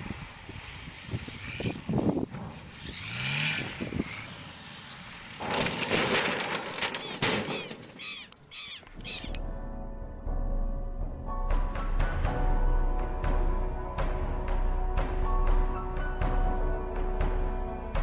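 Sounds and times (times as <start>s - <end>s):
plane crashing: 0.0s - 8.1s
dramatic music: 9.0s - 18.0s.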